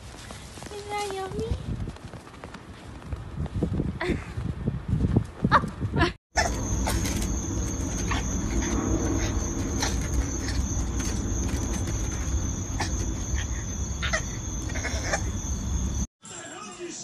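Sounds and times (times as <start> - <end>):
wind rumble on microphone: 1.2 - 15.0
high-pitched insect trill: 6.4 - 16.1.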